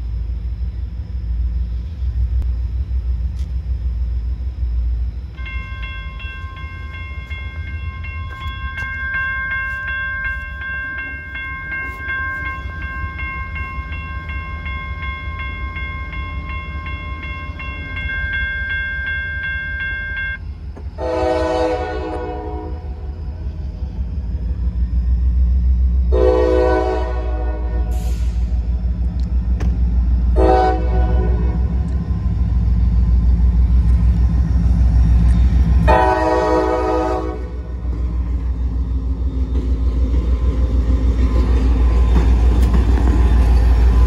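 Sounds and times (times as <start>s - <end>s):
freight train cars rumbling: 0.0s - 44.0s
crossing warning bell ringing: 4.1s - 23.6s, 30.0s - 44.0s
locomotive horn: 21.0s - 23.0s, 26.1s - 28.2s, 30.3s - 31.8s, 35.8s - 37.8s.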